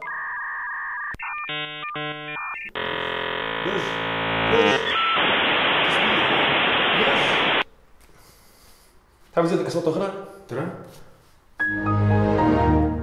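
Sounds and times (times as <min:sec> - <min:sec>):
modem handshake tones and chirps: 0:00.0 - 0:07.6
hiss of scrambled data: 0:03.7 - 0:07.6.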